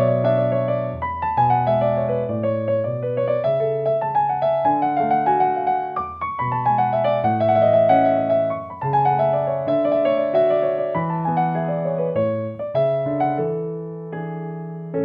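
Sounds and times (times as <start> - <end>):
solo piano playing runs: 0.0 - 15.0.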